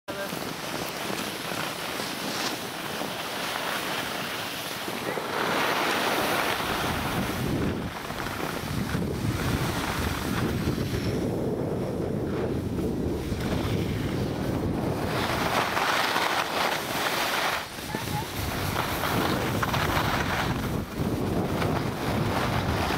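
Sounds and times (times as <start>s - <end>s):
skis sliding over snow: 0.1s - 22.9s
wind rushing over microphone: 0.1s - 22.9s.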